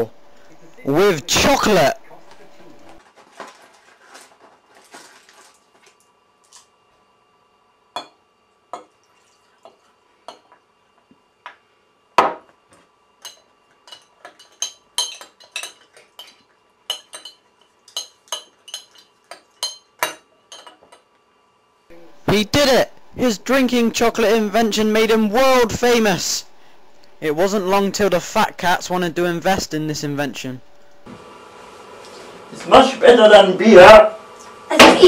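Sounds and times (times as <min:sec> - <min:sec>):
spoon clinking against glass: 0:13.2 - 0:21.0.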